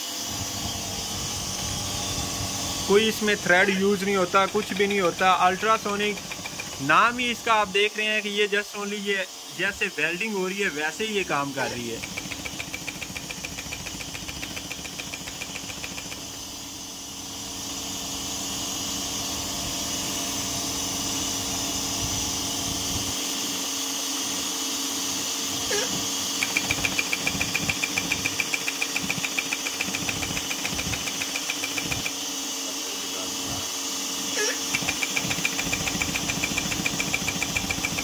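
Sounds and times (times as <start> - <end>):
welding machine humming: 0.0 - 18.5, 24.5 - 38.0
rapid rhythmic ticking: 3.0 - 7.2, 12.0 - 16.3, 26.4 - 32.2, 34.6 - 38.0.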